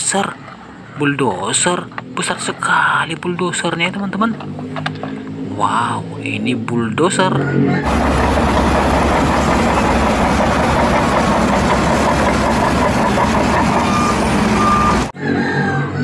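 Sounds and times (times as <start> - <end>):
bulldozer diesel engine rumble: 7.8 - 15.2
short beeps: 13.8 - 15.1.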